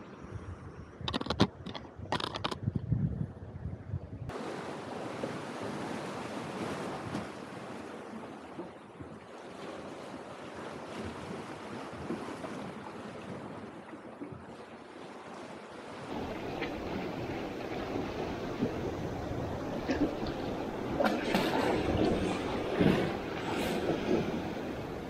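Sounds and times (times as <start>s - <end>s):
waves breaking on rocky shore: 4.3s - 8.6s, 15.3s - 25.0s.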